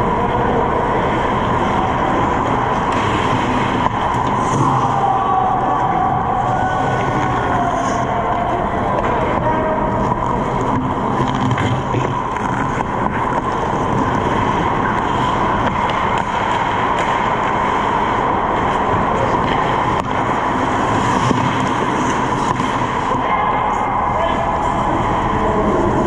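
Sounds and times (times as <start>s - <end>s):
skates on ice: 0.6s - 23.3s
hockey sticks and puck clicking: 7.0s - 23.2s.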